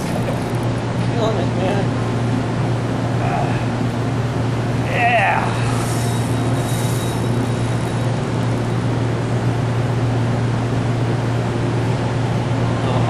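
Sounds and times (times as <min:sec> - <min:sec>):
ship machinery drone: 0:00.0 - 0:13.0
wide even hiss: 0:04.9 - 0:09.2.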